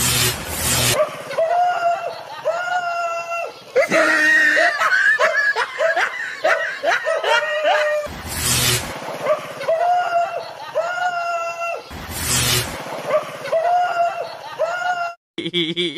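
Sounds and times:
high-pitched voice cackling: 1.0s - 8.1s, 13.4s - 15.9s
short rushing noise: 8.1s - 9.7s, 11.9s - 13.6s.

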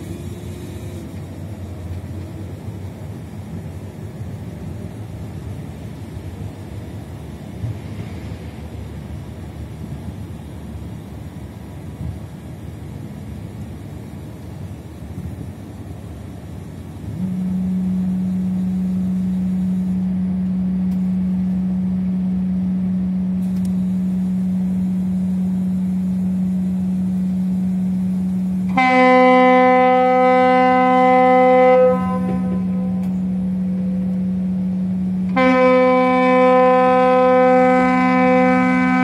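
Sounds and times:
higher ship horn: 0.0s - 2.5s, 17.0s - 39.0s
deep ship horn blast: 17.0s - 39.0s.

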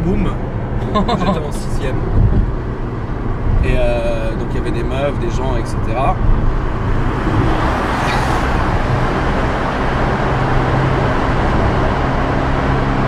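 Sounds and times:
low engine hum: 0.0s - 13.0s
tyre and wind noise: 1.8s - 4.1s, 6.2s - 12.2s.

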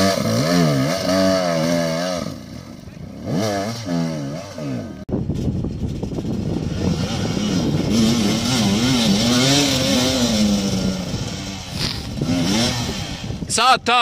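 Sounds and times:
motorcycle engine revving: 0.0s - 13.5s.

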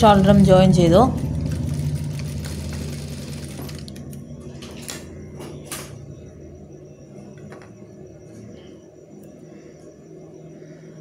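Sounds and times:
sewing machine motor hum: 1.2s - 5.1s.

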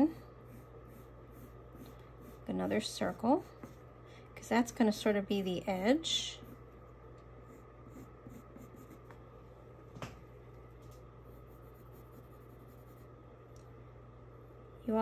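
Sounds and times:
pencil drawing on paper: 0.1s - 3.8s, 7.4s - 9.1s, 11.3s - 13.1s.

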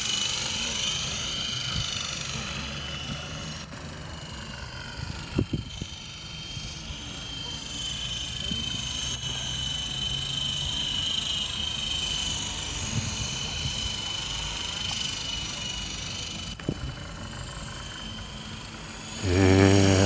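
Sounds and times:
rc helicopter rotors whining: 0.0s - 20.0s
low hum with overtones: 19.2s - 20.0s.

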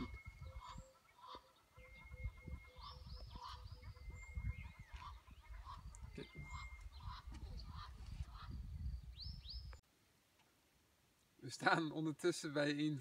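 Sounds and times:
geese honking: 0.0s - 8.5s
birds calling: 0.0s - 9.8s.

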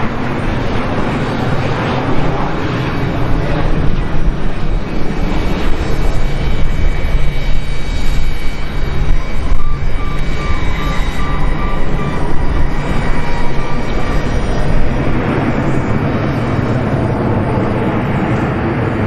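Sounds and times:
jet engines rumbling: 0.0s - 19.0s.

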